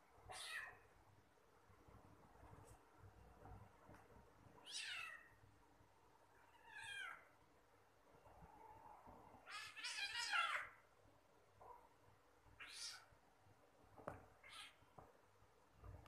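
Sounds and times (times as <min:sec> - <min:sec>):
kitten meowing: 0:12.6 - 0:13.1.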